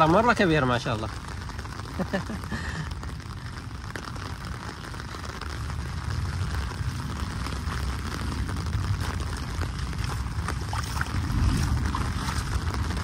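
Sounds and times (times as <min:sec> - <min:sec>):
wind buffeting microphone: 0:03.2 - 0:13.0.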